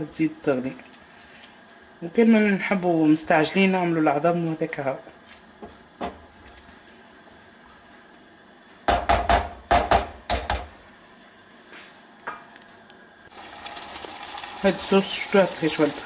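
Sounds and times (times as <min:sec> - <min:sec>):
spatula knocking on frying pan: 0:08.9 - 0:10.7
sauce sizzling in pan: 0:13.3 - 0:16.0.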